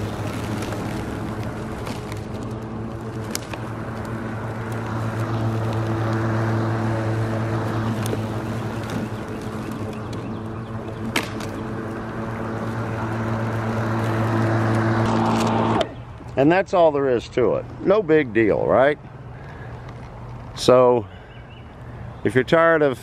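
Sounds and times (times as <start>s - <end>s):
electric lawnmower cutting grass: 0.0s - 16.1s.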